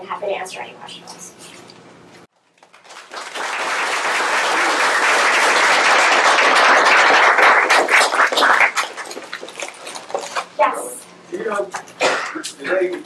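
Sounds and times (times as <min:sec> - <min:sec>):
audience applauding: 0:02.6 - 0:09.6.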